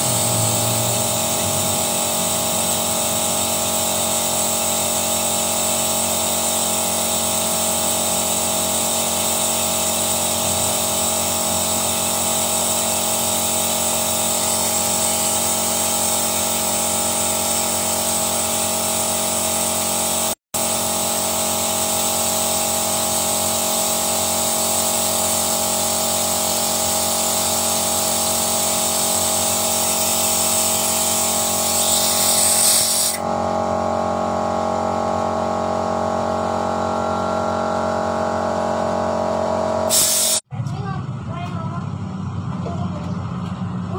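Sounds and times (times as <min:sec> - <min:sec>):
machine hum: 0:00.0 - 0:04.4
high air hiss: 0:24.5 - 0:33.2, 0:39.9 - 0:40.4.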